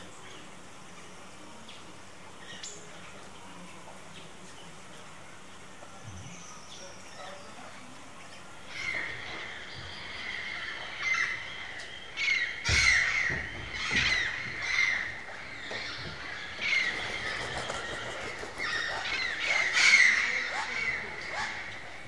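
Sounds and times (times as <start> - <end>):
wood-rails calling: 6.3 - 22.0.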